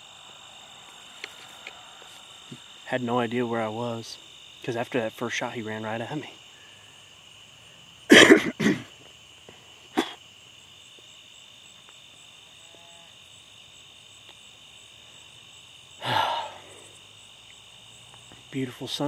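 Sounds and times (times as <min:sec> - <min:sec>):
crickets and insects chirping: 0:00.0 - 0:19.0
man coughing: 0:08.1 - 0:08.9, 0:10.0 - 0:10.2
throat clearing sound: 0:08.1 - 0:08.9, 0:10.0 - 0:10.2.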